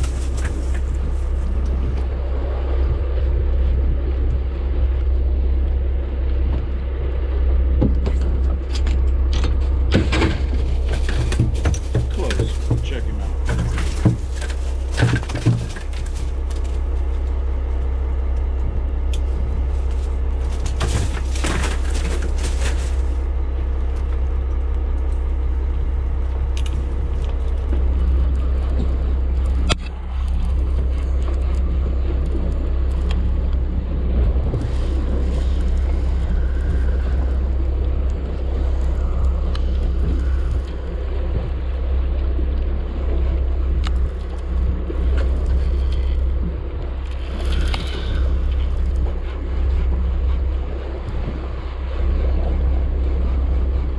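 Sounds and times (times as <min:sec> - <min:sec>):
rustling handling noise: 0:00.0 - 0:01.5, 0:10.0 - 0:17.2, 0:19.3 - 0:23.3
boat engine rumble: 0:00.0 - 0:53.9.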